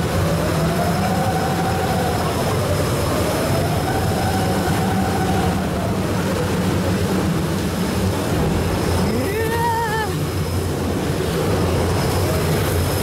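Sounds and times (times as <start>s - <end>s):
boat mechanical hum: 0.0s - 13.0s
person's wavering voice: 9.0s - 10.2s.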